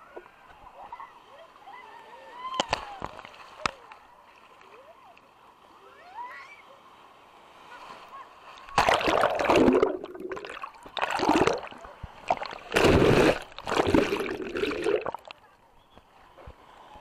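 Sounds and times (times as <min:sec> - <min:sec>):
wave rushing and splashing: 0:07.5 - 0:15.4.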